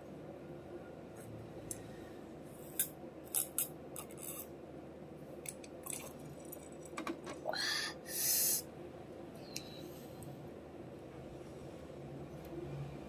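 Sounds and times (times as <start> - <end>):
breathy hiss: 7.5 - 8.7.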